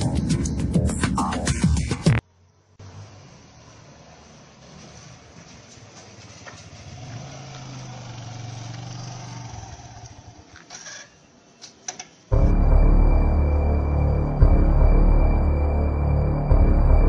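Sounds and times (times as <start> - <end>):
motorcycle engine running: 5.4 - 10.4
eerie music: 12.3 - 17.0.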